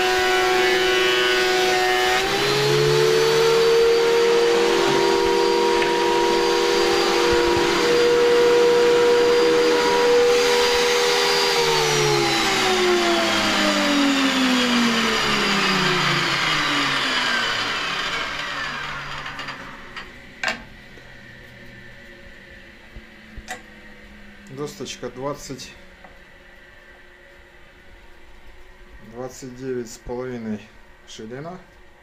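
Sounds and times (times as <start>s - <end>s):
extractor motor whine winding down: 0.0s - 25.6s.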